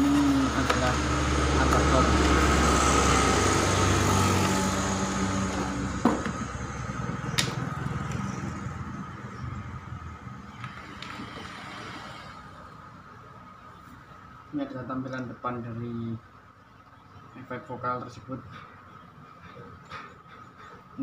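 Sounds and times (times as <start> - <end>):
vehicle engine running: 0.0 - 14.2.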